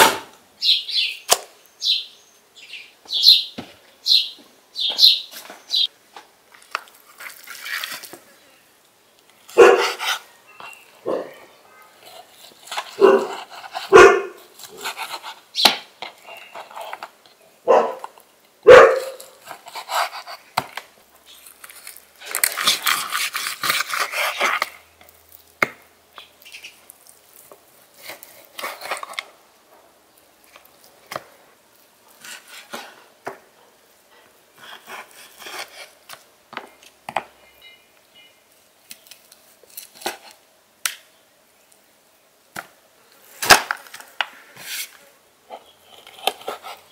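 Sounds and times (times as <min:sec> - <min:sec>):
dog barking: 0:09.6 - 0:10.0, 0:11.0 - 0:12.0, 0:13.0 - 0:14.4, 0:17.6 - 0:19.3
knife rasping: 0:14.6 - 0:15.4, 0:19.3 - 0:20.5, 0:21.9 - 0:24.7, 0:34.6 - 0:36.0.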